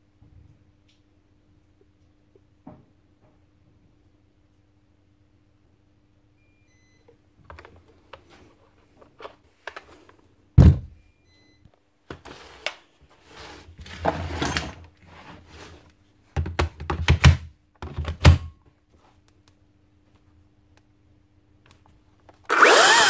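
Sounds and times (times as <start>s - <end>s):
scraping and shuffling: 12.1s - 16.0s.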